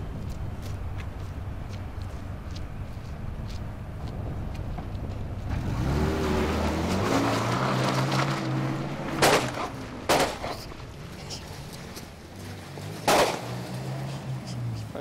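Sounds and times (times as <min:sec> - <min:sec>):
car engine revving: 0:05.5 - 0:15.0
loud gunshot: 0:13.1 - 0:13.5.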